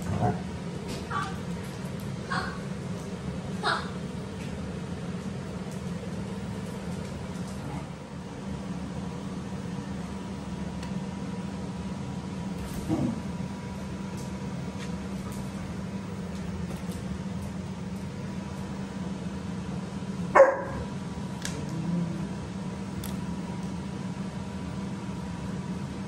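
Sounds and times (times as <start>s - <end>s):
steady low hum: 0.0s - 26.0s
dog yelp: 20.4s - 20.8s.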